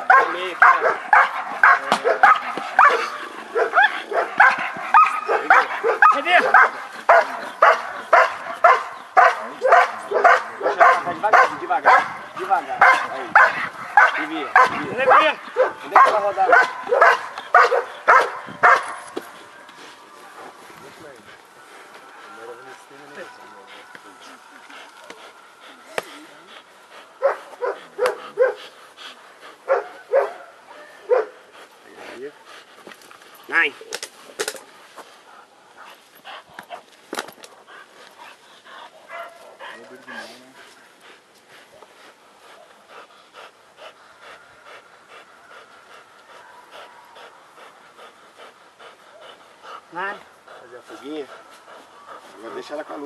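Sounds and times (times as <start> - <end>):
dog barking: 0.0 - 12.2, 12.8 - 19.0, 27.2 - 28.6, 29.7 - 31.4, 39.0 - 39.6
dog panting: 0.0 - 19.8, 21.0 - 33.5, 35.2 - 53.0.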